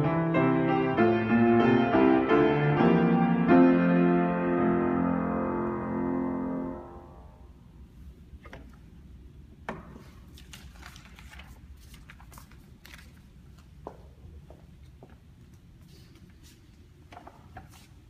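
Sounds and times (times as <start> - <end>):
piano chord ringing: 0.0 - 7.5.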